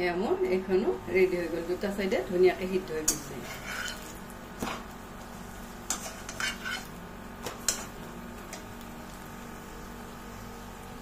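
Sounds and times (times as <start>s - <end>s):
faint oil sizzling: 0.3s - 11.0s
metal spatula scraping pan: 3.1s - 4.8s, 5.9s - 7.0s.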